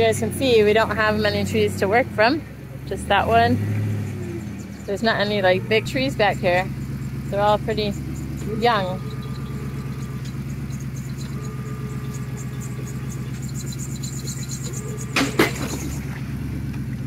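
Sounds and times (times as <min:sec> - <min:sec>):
engine running: 0:00.0 - 0:17.0
sharp knocks: 0:14.3 - 0:16.2.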